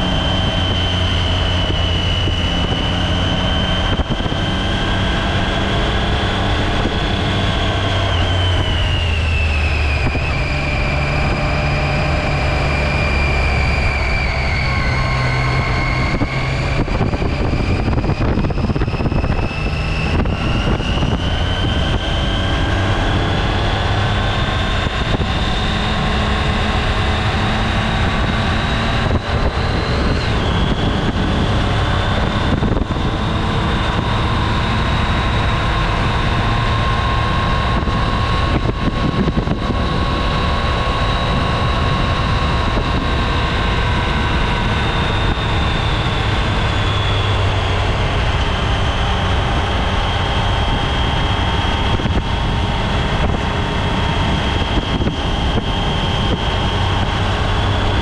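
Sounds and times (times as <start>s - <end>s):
motorcycle engine running: 0.0s - 58.0s
wind noise: 0.0s - 58.0s.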